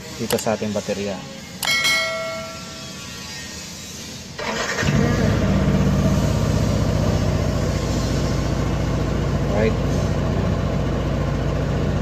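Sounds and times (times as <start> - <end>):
scooter engine starting and idling: 4.4 - 6.9.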